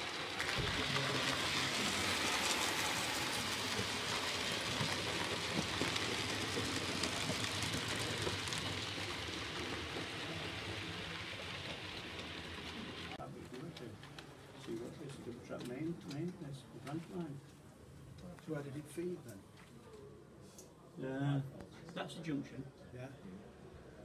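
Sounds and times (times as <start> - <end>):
model train wheels rattling on rails: 0.0 - 17.4.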